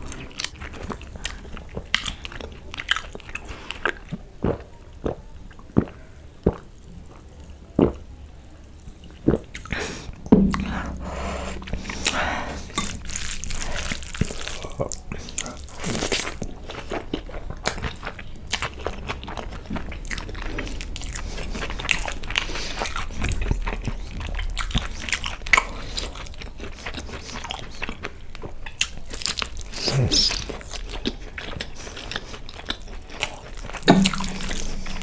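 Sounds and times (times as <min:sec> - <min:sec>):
chewing and mouth smacks: 0:00.0 - 0:06.7, 0:09.0 - 0:10.1, 0:11.6 - 0:35.0
hand squishing sticky rice: 0:12.1 - 0:17.2.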